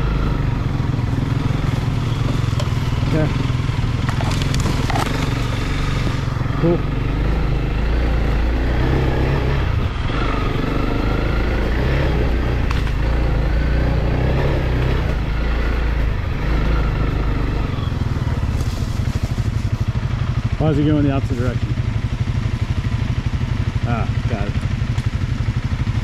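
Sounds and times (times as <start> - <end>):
motorcycle engine running: 0.0 - 26.0.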